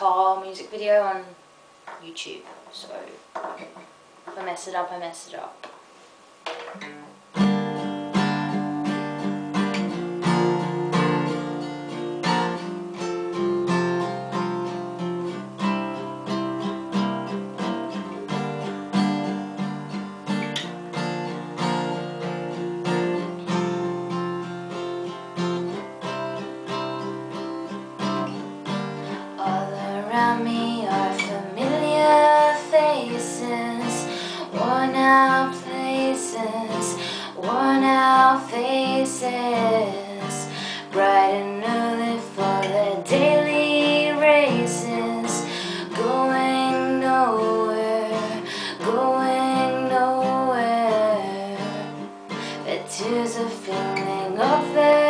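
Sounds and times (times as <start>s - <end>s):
woman singing: 0.0s - 1.4s, 9.9s - 11.6s, 29.0s - 55.0s
acoustic guitar strumming: 6.4s - 55.0s.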